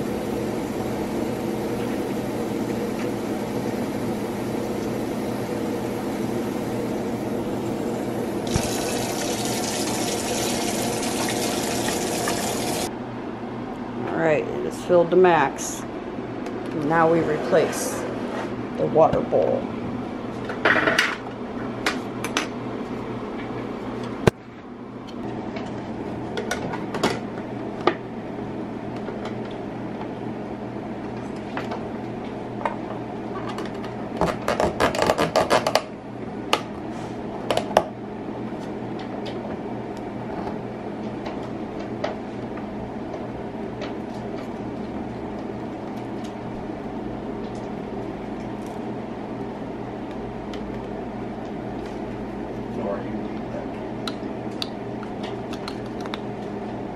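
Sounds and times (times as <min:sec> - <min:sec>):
steady hum: 0:00.0 - 0:31.2.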